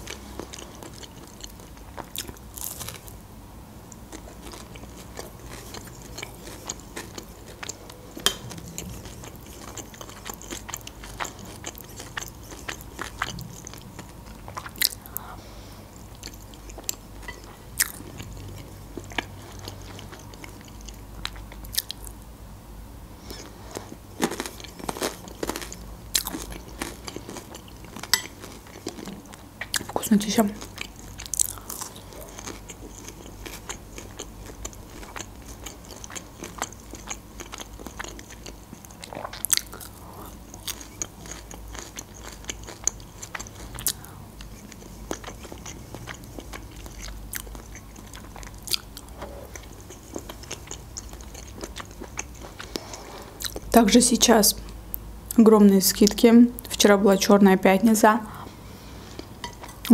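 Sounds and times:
chewing and mouth clicks: 0:00.0 - 0:03.1, 0:03.9 - 0:15.2, 0:16.1 - 0:22.2, 0:23.3 - 0:53.7
crunching bites of fried food: 0:00.1 - 0:03.2, 0:24.2 - 0:30.0.

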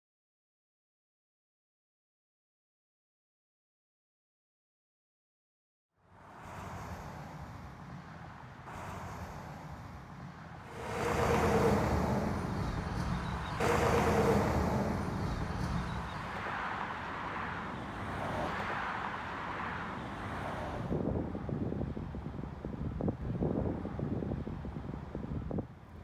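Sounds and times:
cars passing with tyre noise: 0:06.0 - 0:25.2.

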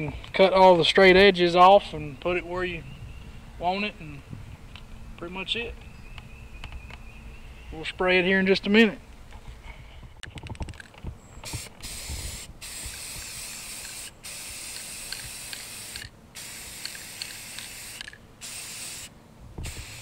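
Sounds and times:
spray paint can hissing: 0:11.4 - 0:20.0.

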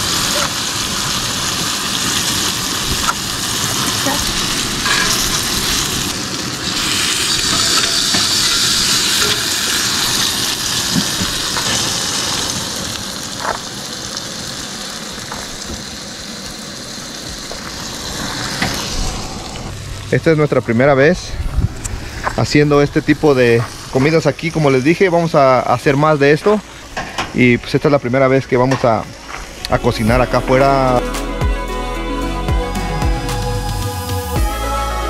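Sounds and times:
steaks sizzling in skillet: 0:00.0 - 0:20.1.

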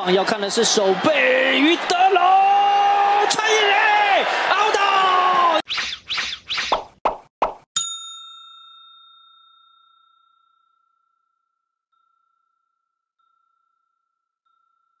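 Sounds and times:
bell-like chime: 0:07.8 - 0:15.0.

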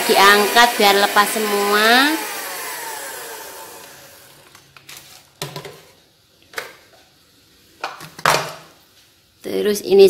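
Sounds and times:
electric mixer whirring: 0:00.0 - 0:04.6.

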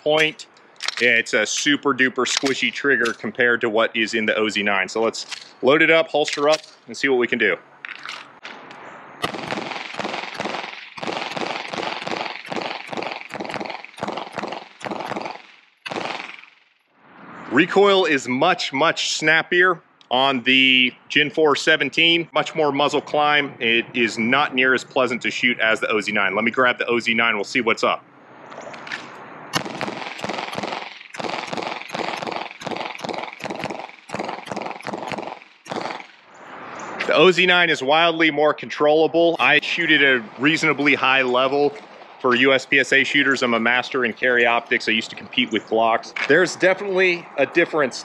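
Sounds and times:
pistol shots: 0:02.3 - 0:03.3, 0:09.2 - 0:16.6, 0:29.5 - 0:36.2.

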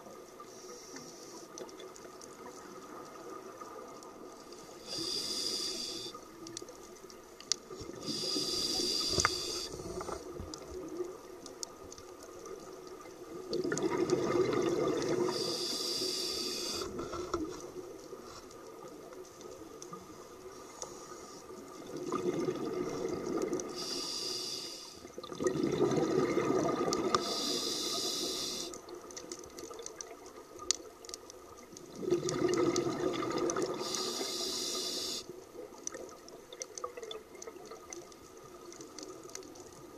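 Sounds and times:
regulator inhalation hiss: 0:04.6 - 0:06.2, 0:08.0 - 0:10.2, 0:15.2 - 0:17.0, 0:23.7 - 0:25.1, 0:27.2 - 0:28.8, 0:33.8 - 0:35.3
exhaled bubbles rumbling: 0:13.4 - 0:15.4, 0:21.8 - 0:23.8, 0:25.2 - 0:27.2, 0:31.8 - 0:33.9.

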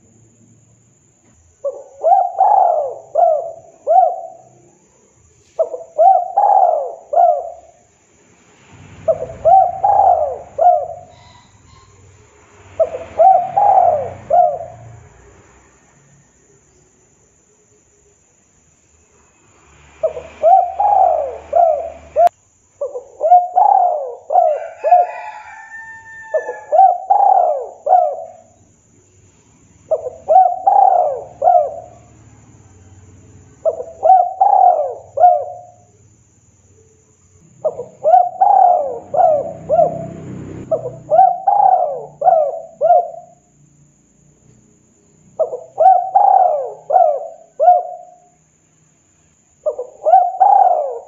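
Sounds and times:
dove cooing: 0:01.6 - 0:04.8, 0:05.5 - 0:07.9, 0:09.0 - 0:12.2, 0:12.8 - 0:15.0, 0:20.0 - 0:28.6, 0:29.9 - 0:32.2, 0:33.6 - 0:35.9, 0:37.6 - 0:43.5, 0:45.3 - 0:48.4, 0:49.6 - 0:51.0.

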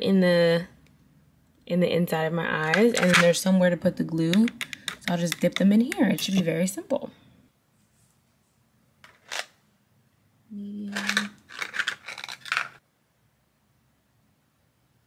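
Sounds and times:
scraping and tapping: 0:04.3 - 0:06.5, 0:11.0 - 0:12.8.

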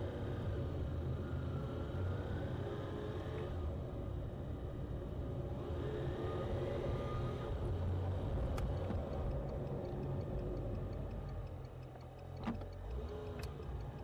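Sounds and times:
car engine and road rumble: 0:00.0 - 0:14.0
turn signal ticking: 0:07.5 - 0:14.0
click: 0:08.4 - 0:14.0.

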